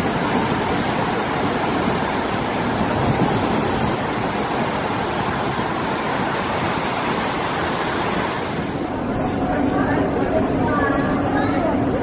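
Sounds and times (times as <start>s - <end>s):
ocean waves on rocky shore: 0.0s - 8.9s.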